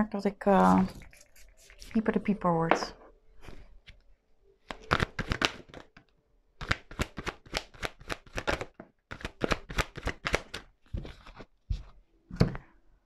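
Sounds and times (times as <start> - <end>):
cards shuffled by hand: 4.7 - 6.0, 6.6 - 11.9.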